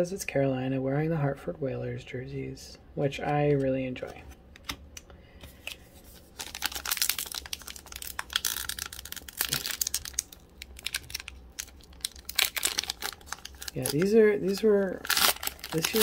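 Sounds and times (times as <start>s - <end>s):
foil wrapper tearing and crinkling: 6.1s - 16.0s.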